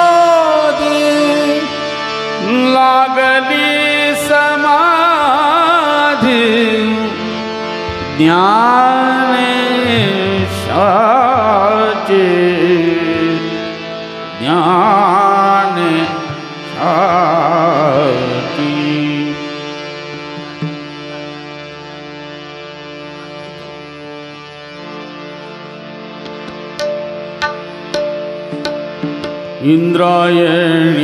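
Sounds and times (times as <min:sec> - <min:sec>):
man singing: 0:00.0 - 0:19.9, 0:29.6 - 0:31.0
steady drone: 0:00.0 - 0:31.0.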